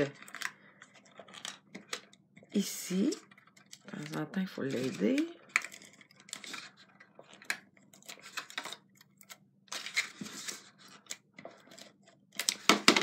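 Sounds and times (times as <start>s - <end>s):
paper rustling: 2.9s - 13.0s.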